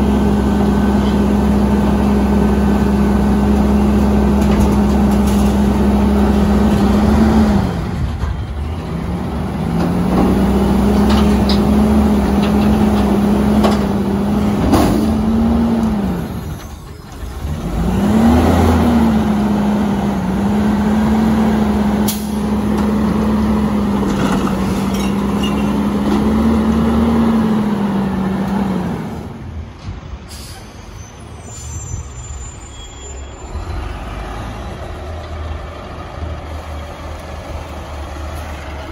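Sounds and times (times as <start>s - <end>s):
garbage truck diesel engine revving: 0.0s - 16.6s, 17.2s - 29.5s
air brake hisses: 30.3s - 33.2s.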